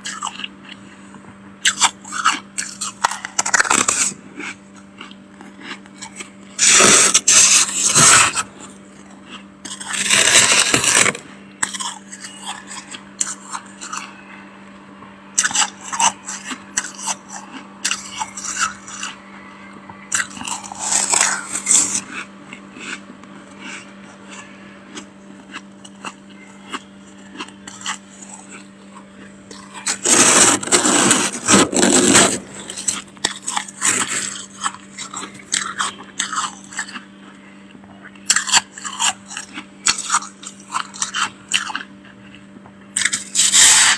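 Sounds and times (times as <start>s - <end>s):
steady low hum: 0.0s - 43.9s
spoon scraping freezer frost: 1.7s - 14.3s, 15.4s - 19.2s, 20.1s - 37.1s, 43.0s - 43.9s
ice crackling: 9.9s - 11.2s, 30.0s - 34.0s.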